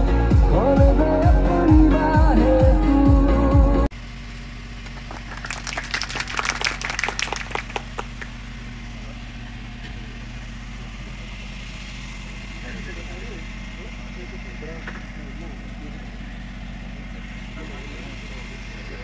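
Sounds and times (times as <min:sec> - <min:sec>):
music: 0:00.0 - 0:03.9
people clapping: 0:04.8 - 0:08.4.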